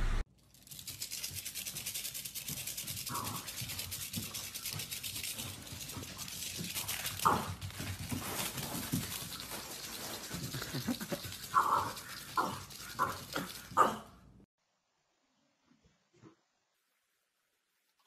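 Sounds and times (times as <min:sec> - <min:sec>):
dog panting fast: 0:02.4 - 0:13.8.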